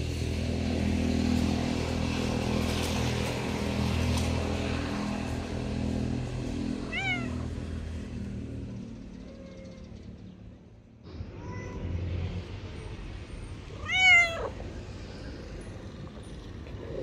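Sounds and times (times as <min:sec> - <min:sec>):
cat meowing: 0:06.8 - 0:07.5, 0:11.4 - 0:12.0, 0:13.8 - 0:14.6.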